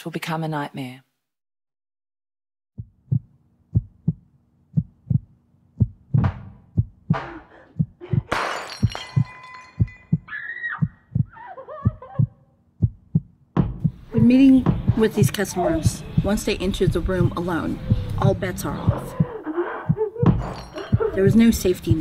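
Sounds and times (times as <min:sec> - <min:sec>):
heartbeat thumps: 0:02.8 - 0:22.0
wavering voice-like sounds: 0:15.3 - 0:21.4.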